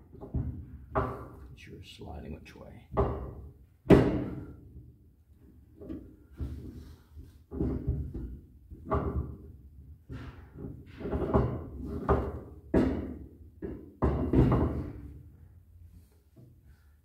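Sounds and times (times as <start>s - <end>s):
heavy metal clunks and knocks: 0.0s - 1.4s, 2.9s - 4.9s, 7.5s - 15.2s.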